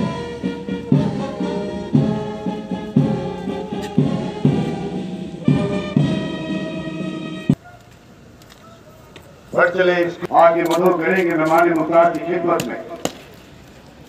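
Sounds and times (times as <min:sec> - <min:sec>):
heavy drum beat: 0:00.0 - 0:06.8
sustained brass chords: 0:00.0 - 0:07.6.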